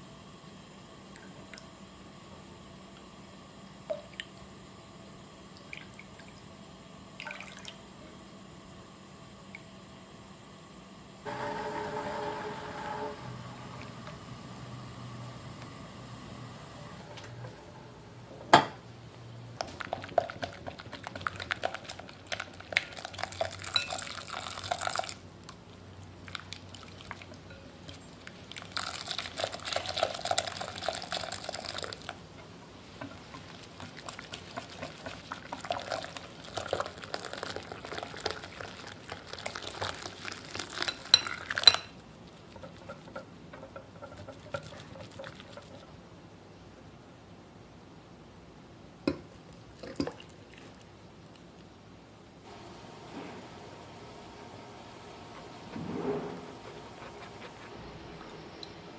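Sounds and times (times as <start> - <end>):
liquid pouring: 21.0 - 25.2, 28.5 - 32.2, 33.9 - 41.8.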